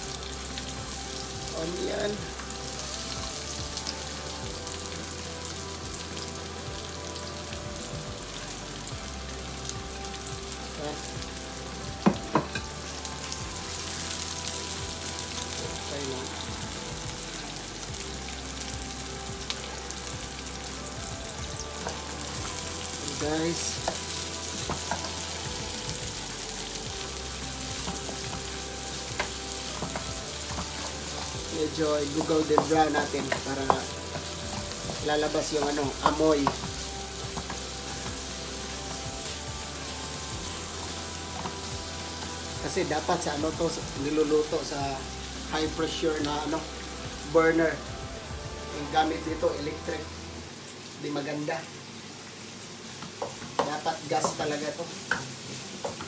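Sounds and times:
garlic and onion sizzling in pan: 0:00.0 - 0:56.0.

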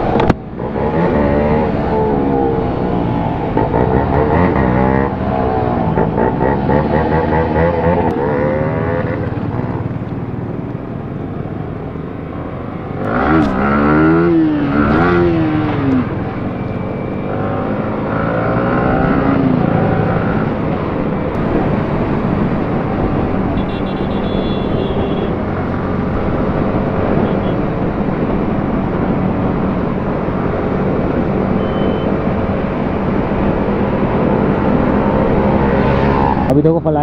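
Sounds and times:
motorcycle engines accelerating: 0:00.0 - 0:37.0
wind rushing over microphone: 0:18.6 - 0:23.8.

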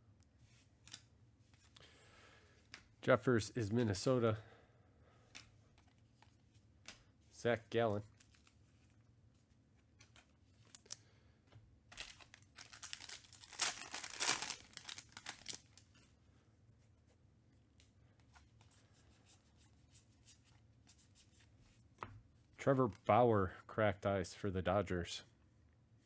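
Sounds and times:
wrapper torn and crinkled: 0:11.9 - 0:15.9.

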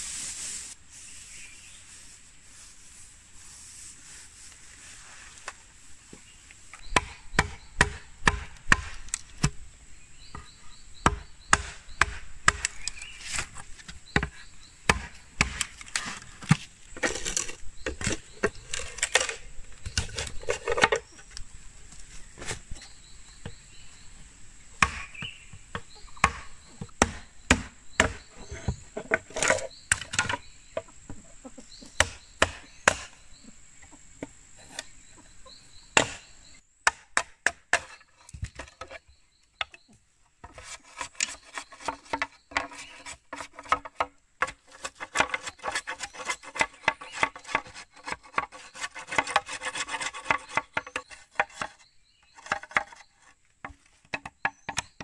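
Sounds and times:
sharp wooden knocks on bamboo: 0:06.8 - 0:09.6, 0:11.0 - 0:13.0, 0:14.1 - 0:15.7, 0:24.8 - 0:28.2, 0:32.0 - 0:33.2, 0:36.0 - 0:38.9, 0:53.6 - 0:55.0
rasping sawing of bamboo: 0:40.4 - 0:53.2.

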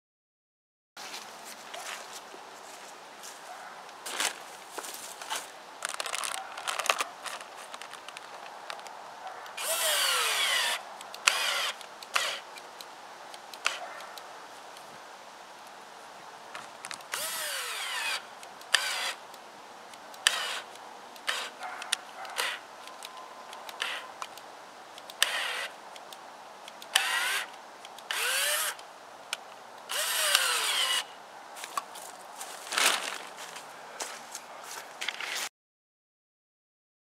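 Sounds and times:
power drill driving screws: 0:09.6 - 0:12.5, 0:17.1 - 0:19.2, 0:20.2 - 0:21.6, 0:22.4 - 0:22.6, 0:23.8 - 0:24.0, 0:25.2 - 0:25.7, 0:26.9 - 0:27.5, 0:28.1 - 0:28.8, 0:29.9 - 0:31.1.

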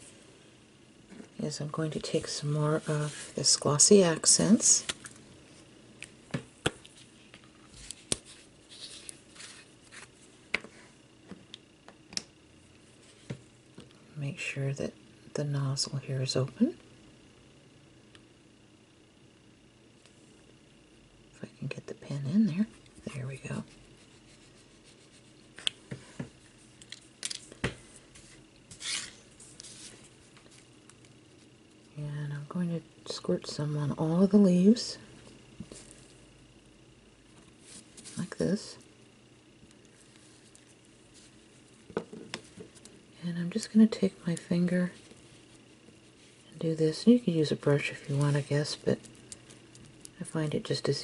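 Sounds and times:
short rustling rub: 0:02.0 - 0:03.5, 0:06.9 - 0:10.9, 0:23.7 - 0:25.6, 0:27.8 - 0:30.7, 0:44.9 - 0:46.6.

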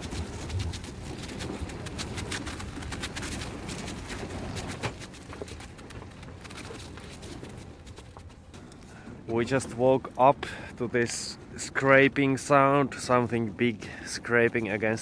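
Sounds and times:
ice cracking against hull: 0:00.0 - 0:08.4.

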